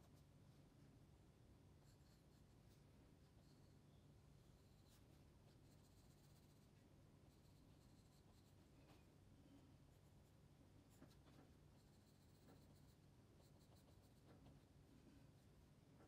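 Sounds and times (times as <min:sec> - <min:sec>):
pencil scratching on paper: 0:01.8 - 0:03.7, 0:04.5 - 0:08.9, 0:10.0 - 0:15.6.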